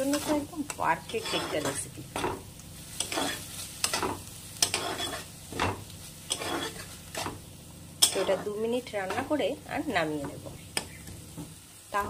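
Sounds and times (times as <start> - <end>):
spatula scraping iron pan: 0.0 - 2.4, 3.0 - 7.4, 8.0 - 9.4
paste sizzling in oil: 0.0 - 12.0.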